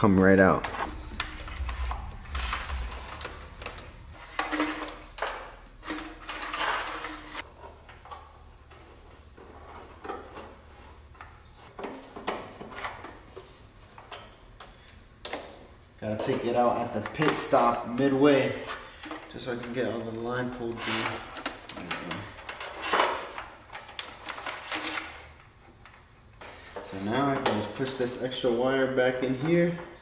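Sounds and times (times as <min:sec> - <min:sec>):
wire rustling and scraping: 0:00.6 - 0:07.5.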